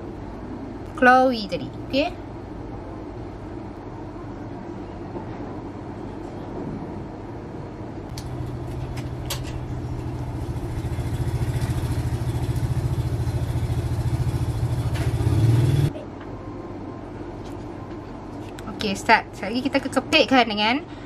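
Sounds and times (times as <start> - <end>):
engine running: 8.1 - 16.0.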